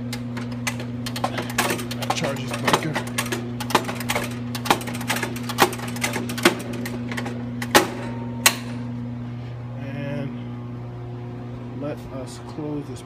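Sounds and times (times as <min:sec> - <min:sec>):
circuit breaker ratcheting clicks: 0:00.0 - 0:08.8
electrical hum: 0:00.0 - 0:13.0.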